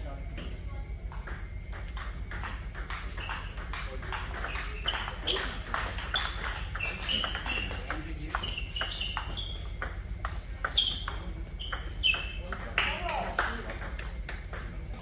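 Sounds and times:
ping pong ball clicks: 1.1s - 14.8s
shoes squeaking on floor: 3.0s - 3.6s, 4.2s - 12.5s.

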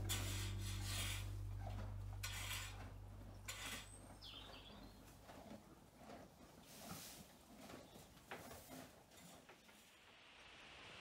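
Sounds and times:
background music: 0.0s - 3.5s
tool scraping yard floor: 0.0s - 10.0s.

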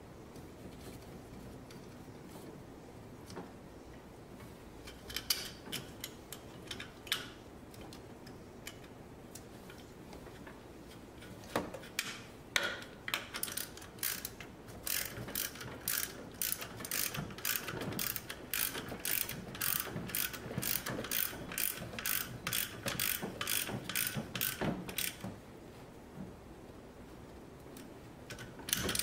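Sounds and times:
ratchet wrench clicking: 13.3s - 25.2s.

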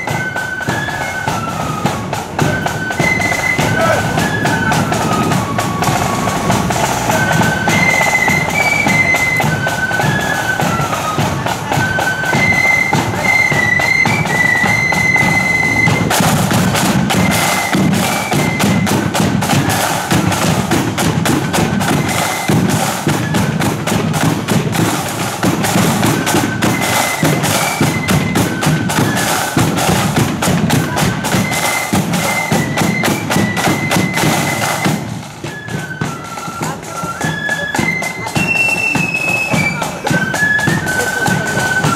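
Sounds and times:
shrill flute melody: 0.0s - 41.9s
side and bass drum strokes: 1.9s - 10.4s.

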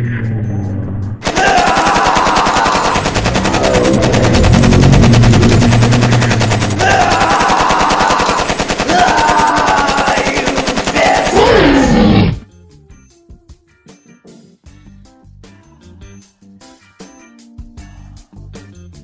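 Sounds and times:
rapid machine-gun fire: 1.2s - 12.1s.

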